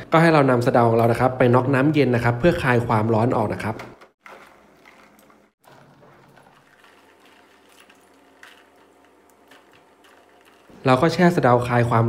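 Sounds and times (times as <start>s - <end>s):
water sloshing in bowl: 4.2s - 10.8s.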